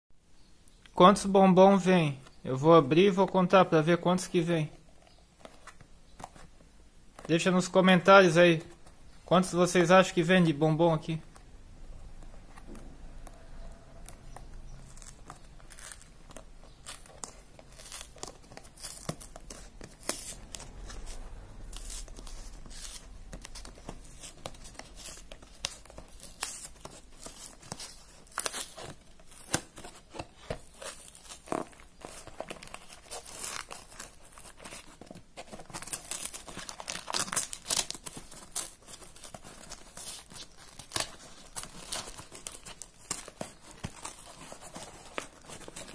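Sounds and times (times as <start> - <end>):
plastic wrapper crinkling: 11.0 - 45.9.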